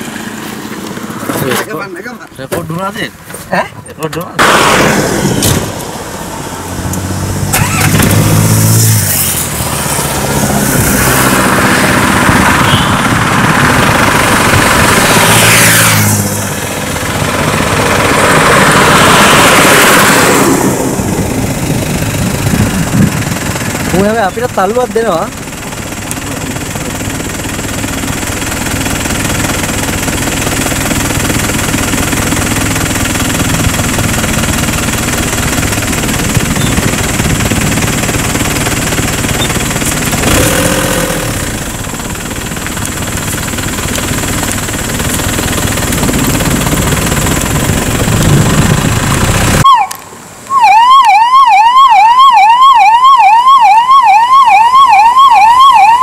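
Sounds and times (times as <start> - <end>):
ambulance siren yelping: 49.6 - 56.0.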